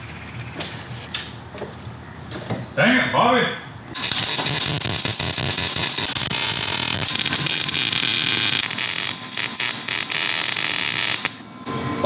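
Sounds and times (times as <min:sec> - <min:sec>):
arc welder crackling: 0:04.0 - 0:11.4.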